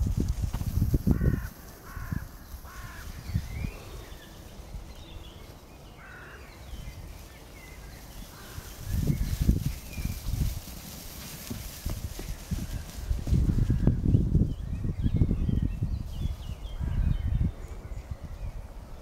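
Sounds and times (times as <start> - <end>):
small birds chirping: 1.0 - 19.0.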